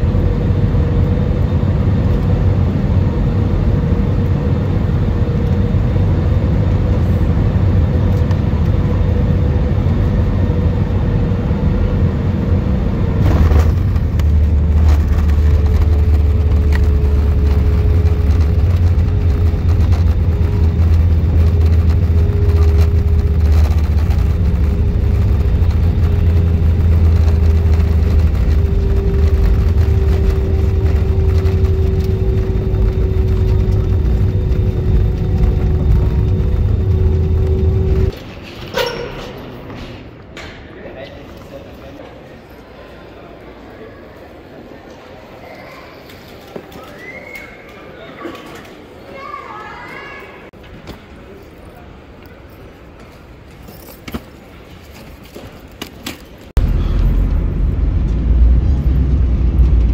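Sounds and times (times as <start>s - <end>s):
jet airliner cabin rumble: 0.0s - 38.2s, 56.4s - 59.9s.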